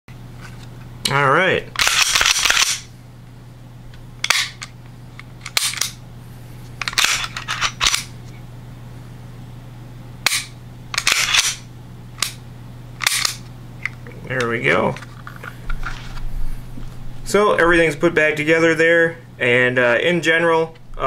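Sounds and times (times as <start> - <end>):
steady low hum: 0.1 - 21.0
pistol slide metallic clicks: 5.5 - 6.0, 10.2 - 11.6, 13.0 - 13.4.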